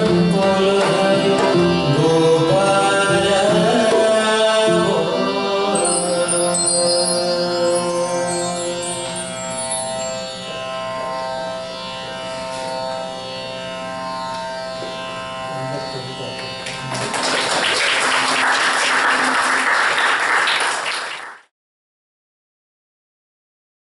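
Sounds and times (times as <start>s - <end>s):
band sustained notes: 0.0s - 19.5s
audience applause: 16.6s - 21.5s.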